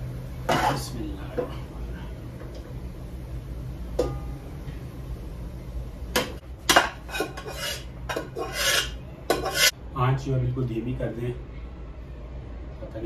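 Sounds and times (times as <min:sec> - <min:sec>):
spoon scraping pot: 0:06.8 - 0:09.8.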